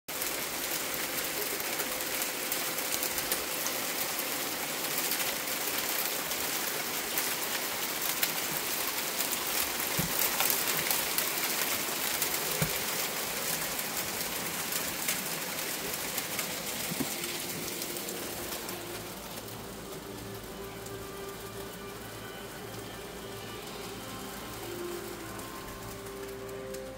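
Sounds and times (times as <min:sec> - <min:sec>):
hail and rain on wooden deck: 0:00.1 - 0:26.9
sharp knocks of hail: 0:00.2 - 0:19.5.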